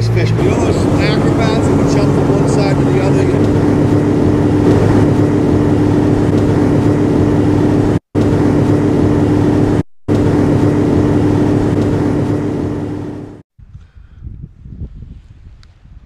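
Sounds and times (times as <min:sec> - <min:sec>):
motorboat engine running: 0:00.0 - 0:13.4
wind and water rushing: 0:00.6 - 0:06.2.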